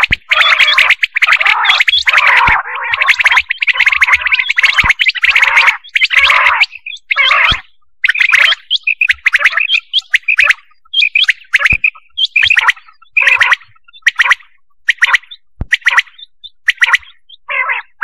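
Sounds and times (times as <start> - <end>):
quail calls: 0.0 - 18.0
rapid sharp chirping: 0.0 - 18.0.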